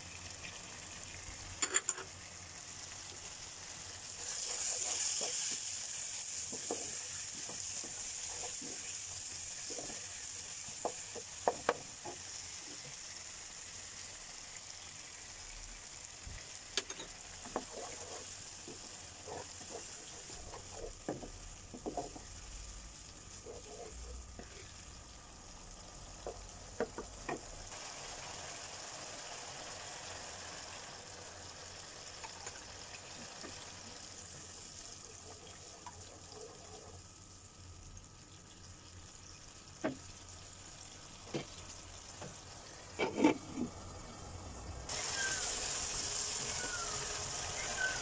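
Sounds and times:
masala sizzling in oil: 0:00.0 - 0:48.0
wooden spatula knocking on pan: 0:06.5 - 0:08.0, 0:10.8 - 0:11.9, 0:26.2 - 0:27.4.

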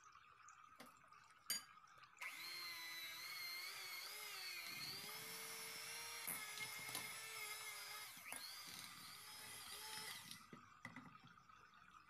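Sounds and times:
electric hand mixer whining: 0:02.2 - 0:10.5.

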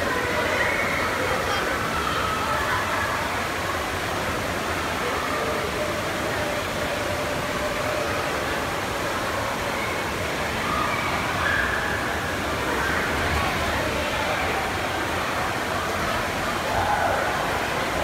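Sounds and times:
faint distant voices: 0:00.0 - 0:18.0
indoor hall hubbub: 0:00.0 - 0:18.0.

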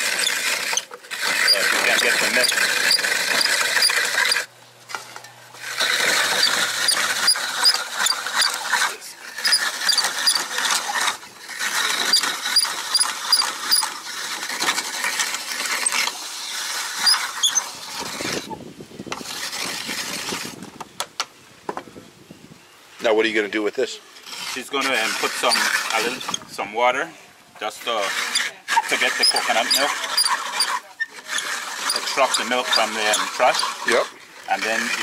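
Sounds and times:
high squeak of grater: 0:00.0 - 0:04.5, 0:05.7 - 0:18.6, 0:24.2 - 0:26.5, 0:27.8 - 0:35.0
coconut grater scraping: 0:00.0 - 0:18.6, 0:19.2 - 0:20.6, 0:24.2 - 0:26.7, 0:27.6 - 0:35.0.

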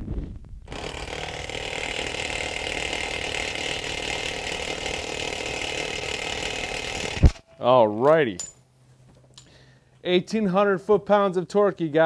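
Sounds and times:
impact wrench hammering: 0:00.7 - 0:07.4.

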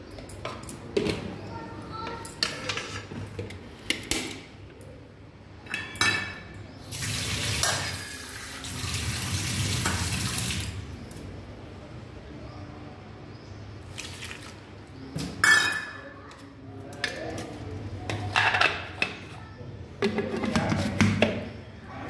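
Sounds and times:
kitchen utensils clinking: 0:05.6 - 0:08.6, 0:15.2 - 0:16.2
water running from a tap: 0:06.9 - 0:10.8.

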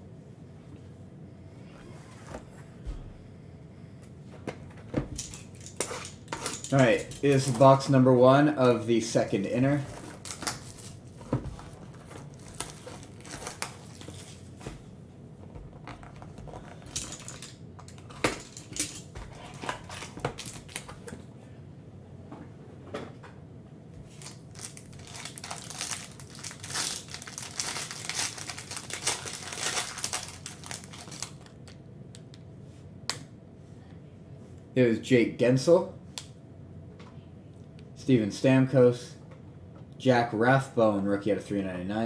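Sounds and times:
foil pack crinkling: 0:05.5 - 0:07.9, 0:08.8 - 0:14.6, 0:19.5 - 0:21.0, 0:24.1 - 0:31.8.

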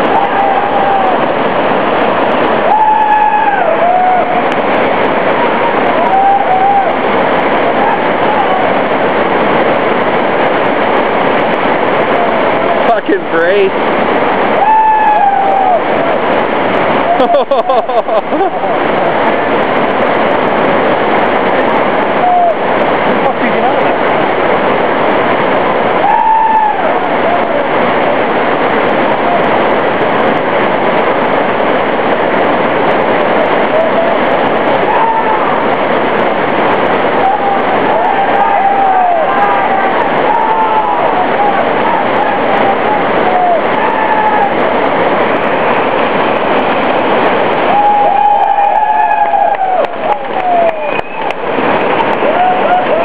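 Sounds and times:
whitewater rapids roaring: 0:00.0 - 0:53.0.

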